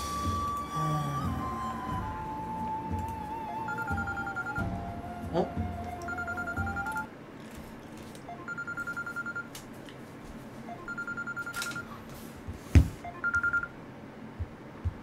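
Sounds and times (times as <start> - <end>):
telephone ringing electronically: 3.6 - 4.7, 6.1 - 7.1, 8.3 - 9.5, 10.7 - 12.0, 13.0 - 13.7.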